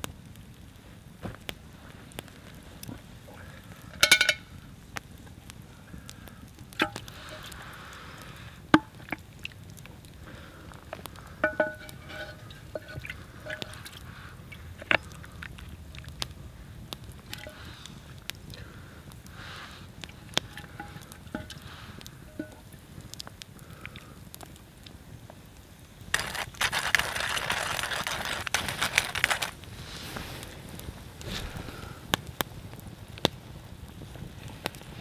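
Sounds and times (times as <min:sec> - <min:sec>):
wooden spoon scraping a pot: 0:11.4 - 0:14.1, 0:17.3 - 0:17.6, 0:20.1 - 0:22.6, 0:26.2 - 0:29.6.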